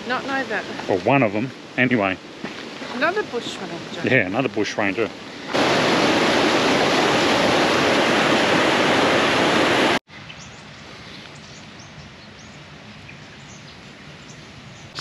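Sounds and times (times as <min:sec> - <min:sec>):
water rushing over rocks: 0:00.0 - 0:10.0.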